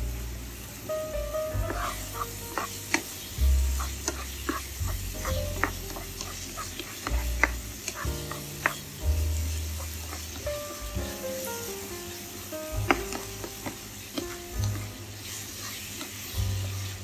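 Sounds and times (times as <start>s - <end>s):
food sizzling in a pan: 0.0s - 17.0s
spatula scraping and knocking a pan: 1.5s - 11.0s, 12.7s - 17.0s.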